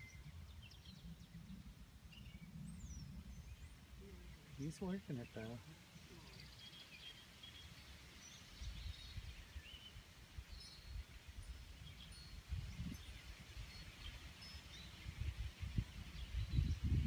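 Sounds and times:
wind buffeting microphone: 0.0 - 7.2, 7.9 - 17.0.

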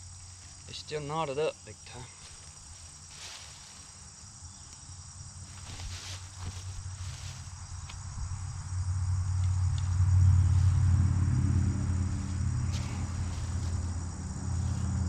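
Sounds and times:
insects trilling: 0.0 - 15.0
hide rustling: 5.4 - 7.6
low hum: 6.6 - 15.0.

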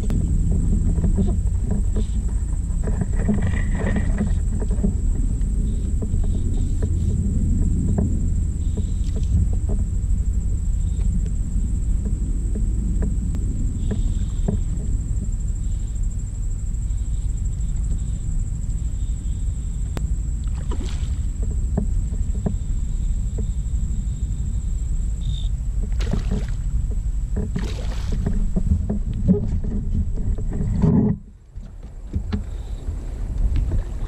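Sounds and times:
wind buffeting microphone: 0.0 - 34.0
small knocks: 20.6 - 22.7, 25.8 - 32.7.

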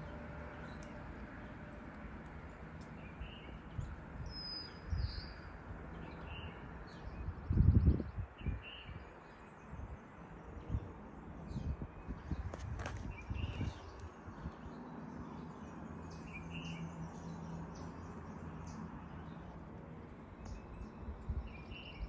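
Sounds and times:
small birds chirping: 0.0 - 22.0.

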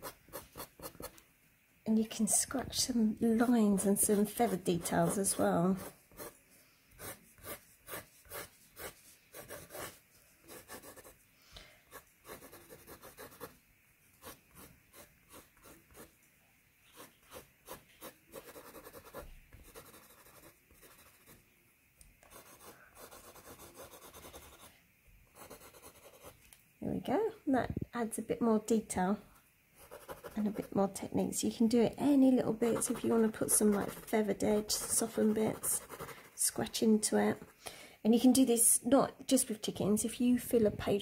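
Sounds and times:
plastic scratching oil pastel: 32.7 - 36.4.

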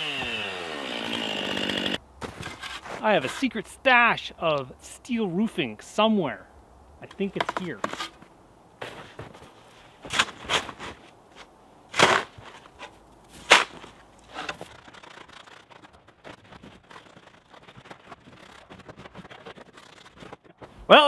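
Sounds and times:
faint scuffing: 2.2 - 3.5, 7.8 - 11.5
snow shovel scraping: 2.2 - 3.6, 8.8 - 20.7.

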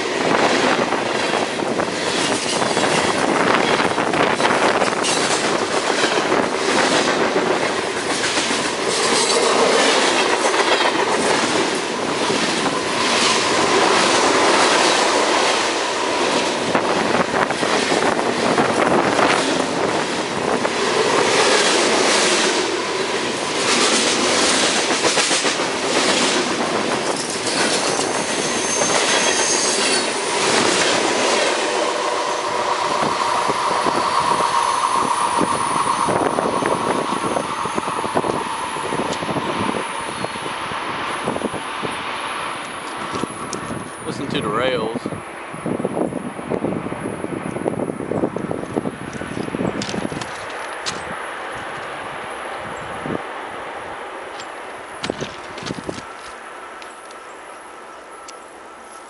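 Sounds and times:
train wheels clacking over rails: 0.0 - 44.2, 54.3 - 57.2
high-pitched wheel squeal: 27.6 - 30.7, 31.8 - 40.5.

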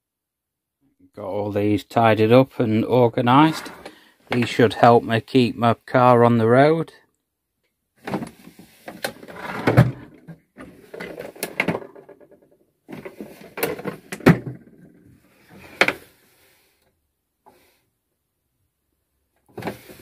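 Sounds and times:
metal drawers sliding: 3.3 - 4.5.

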